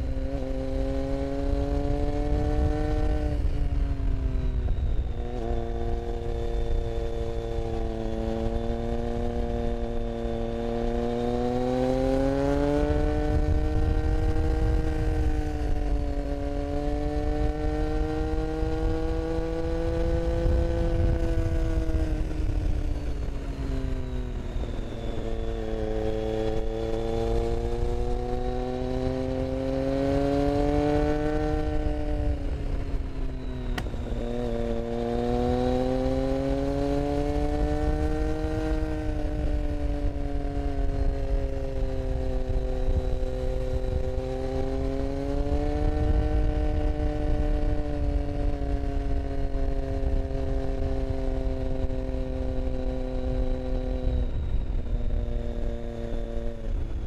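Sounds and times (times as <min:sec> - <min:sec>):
motorcycle engine: 0:00.0 - 0:57.0
wind rumble on microphone: 0:00.0 - 0:57.0.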